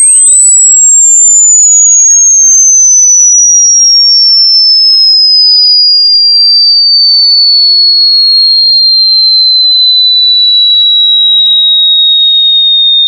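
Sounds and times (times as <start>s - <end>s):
high-pitched tone sliding down: 0.0s - 6.2s
sweeping whistles: 0.0s - 13.0s.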